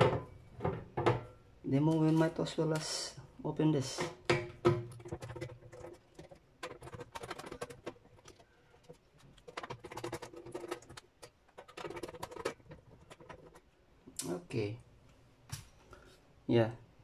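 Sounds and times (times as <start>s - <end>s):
rapid small clicks and taps: 4.8s - 14.3s.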